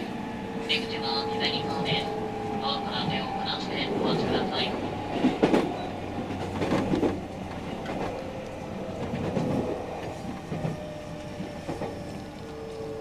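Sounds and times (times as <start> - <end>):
train running hum: 0.0 - 13.0
train wheels clacking over joints: 3.9 - 13.0.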